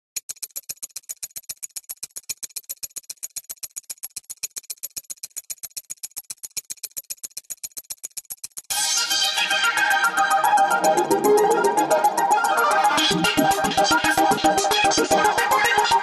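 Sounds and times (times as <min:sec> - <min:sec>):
rapid even ticking: 0:00.2 - 0:16.0
accordion and strings music: 0:08.8 - 0:16.0.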